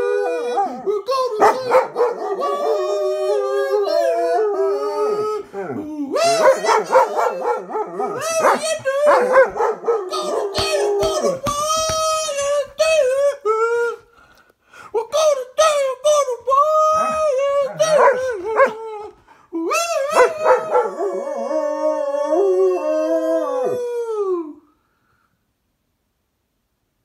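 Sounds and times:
dog howling: 0:00.0 - 0:11.5, 0:16.9 - 0:19.2, 0:19.9 - 0:24.5.

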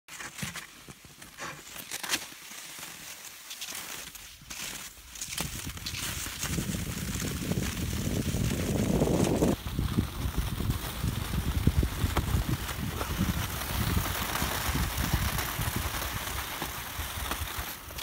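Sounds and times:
skis swishing on snow: 0:00.1 - 0:18.0
wind thumps on microphone: 0:05.4 - 0:17.5.

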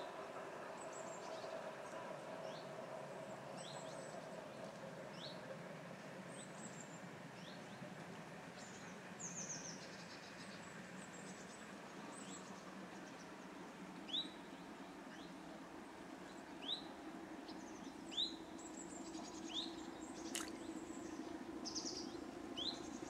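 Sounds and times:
songbirds chirping: 0:06.4 - 0:23.0.

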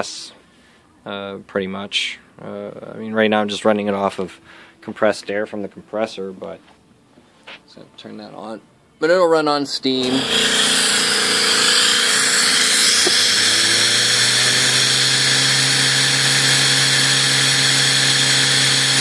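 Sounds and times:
turbine high whine: 0:09.9 - 0:19.0
air hissing: 0:10.0 - 0:16.7.

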